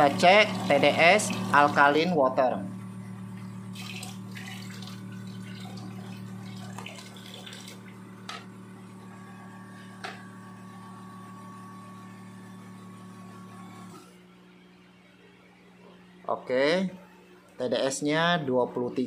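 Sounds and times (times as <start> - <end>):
water running from faucet: 0.0 - 2.1, 3.7 - 8.4
water machine humming: 0.0 - 14.5.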